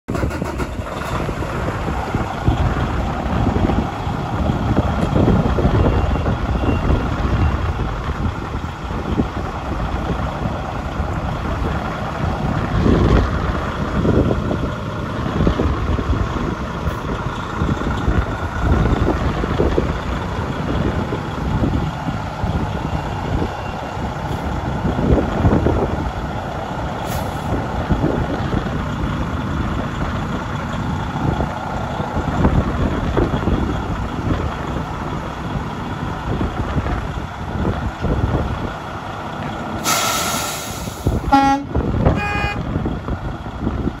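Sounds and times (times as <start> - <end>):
diesel truck engine idling: 0.1 - 44.0
compressed air hiss: 39.8 - 41.2
short horn toots: 41.3 - 42.6.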